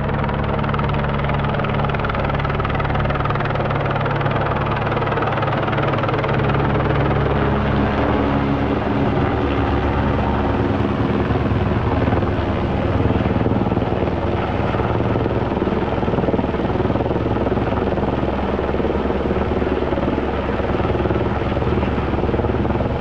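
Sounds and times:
helicopter rotor and turbine: 0.0 - 23.0.

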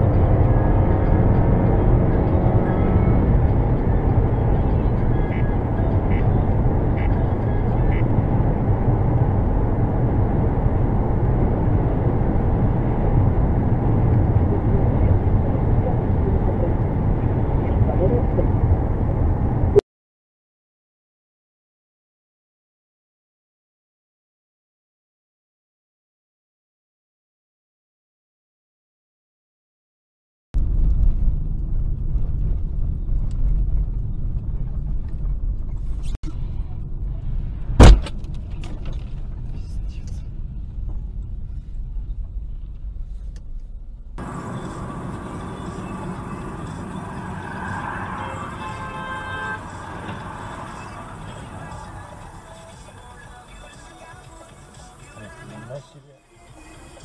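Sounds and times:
car driving at highway speed: 0.0 - 19.8, 30.6 - 57.0
loud bang: 37.8 - 38.2.

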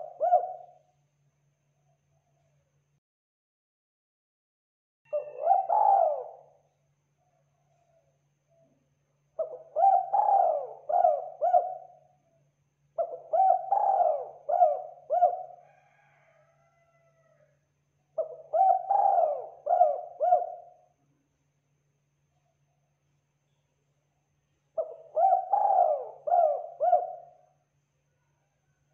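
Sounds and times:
dove cooing: 0.0 - 0.8, 5.1 - 6.6, 9.4 - 12.2, 13.0 - 16.1, 18.2 - 20.8, 24.8 - 27.4.

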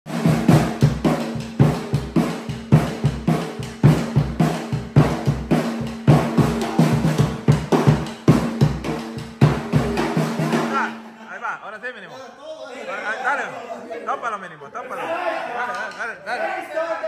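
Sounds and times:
bass drum beat: 0.1 - 11.0.

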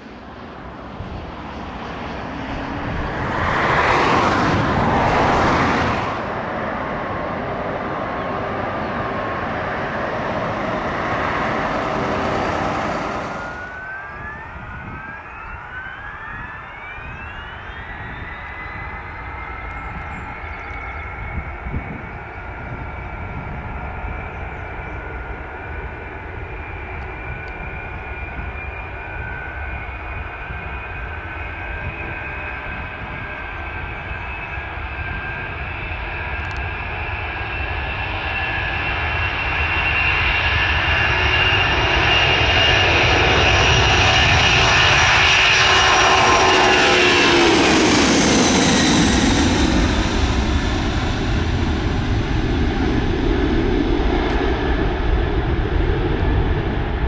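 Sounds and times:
jet engines spooling up: 0.0 - 57.0
loud even rushing noise: 2.6 - 6.7, 9.3 - 15.0.

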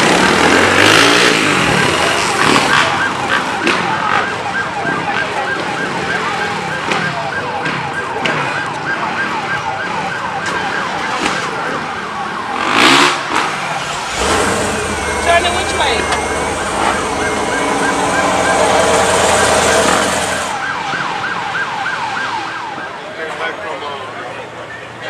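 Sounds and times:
busy background noise: 0.0 - 25.0
siren wailing: 11.7 - 23.0
short loud burst: 13.7 - 20.6.

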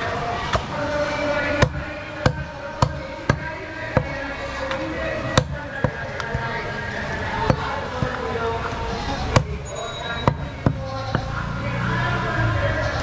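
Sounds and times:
cleaver chopping meat: 1.5 - 6.5, 7.4 - 8.3, 9.3 - 9.6, 10.2 - 11.3.

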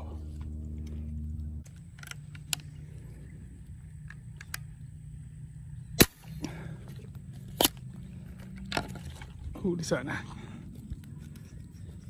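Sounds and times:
steady low hum: 0.0 - 12.0
airgun shot: 6.0 - 6.4.

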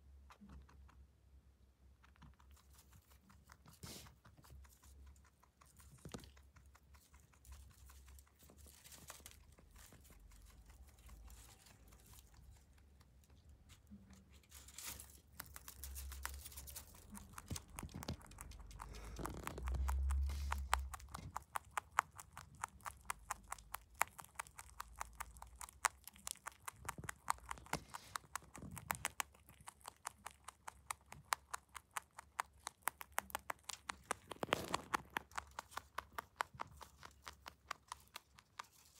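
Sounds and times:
rabbit chewing hay: 0.0 - 38.9
low rumble: 17.0 - 21.5.

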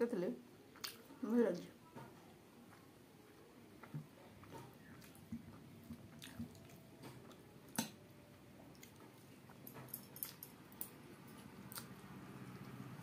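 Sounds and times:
mouth smacks while chewing: 0.8 - 1.1, 3.7 - 8.0.

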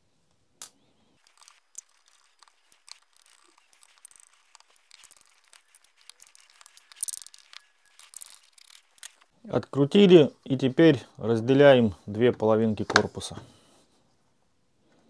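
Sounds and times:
screwdriver clicks and creaks: 0.6 - 9.3
plastic crackle: 1.2 - 9.3.

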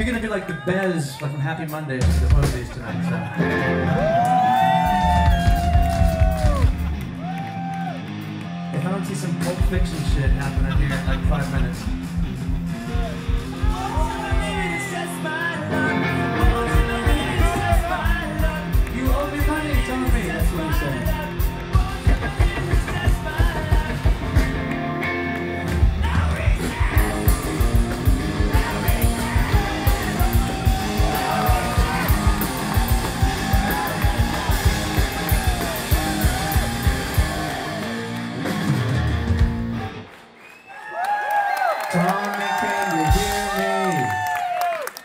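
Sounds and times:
steady drum beat: 1.7 - 3.1, 3.8 - 7.4, 9.2 - 15.2, 16.4 - 24.8, 25.6 - 40.0, 43.0 - 43.8
bass guitar: 1.8 - 40.2
distorted electric guitars: 2.0 - 40.4
person singing: 12.9 - 24.4, 26.0 - 38.0.

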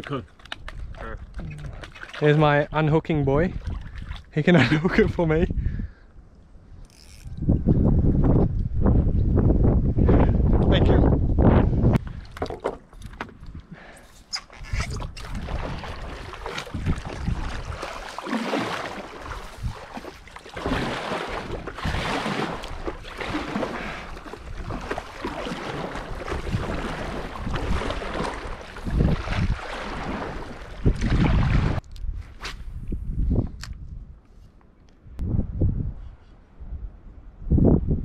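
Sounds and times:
paddle splashing water: 0.0 - 2.8, 3.5 - 4.8, 12.0 - 31.8
wind rumbling on microphone: 0.0 - 38.0.

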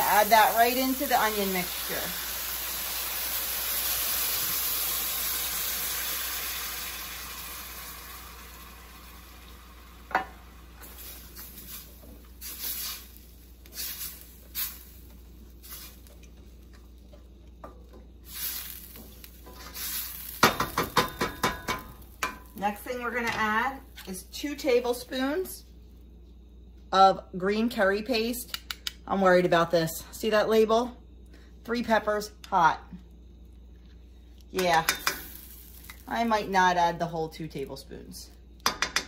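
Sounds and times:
liquid sizzling in hot pan: 0.0 - 17.1, 17.9 - 23.2, 34.7 - 36.7
spoon knocking on pan: 20.4 - 22.5, 34.7 - 35.4, 38.6 - 39.0.

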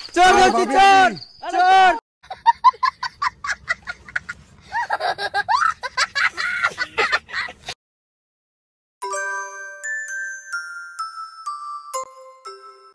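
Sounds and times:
young child laughing: 2.3 - 7.8.

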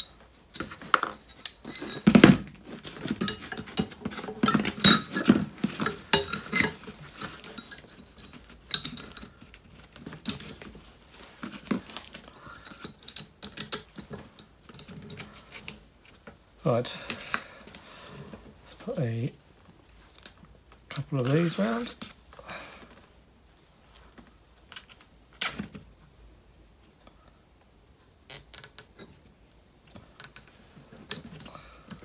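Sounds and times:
metallic clinks and knocks: 0.0 - 10.8.

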